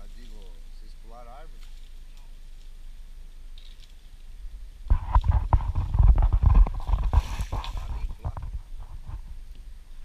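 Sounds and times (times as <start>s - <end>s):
branches cracking and rustling: 0.0s - 10.0s
low thumps: 4.4s - 9.5s.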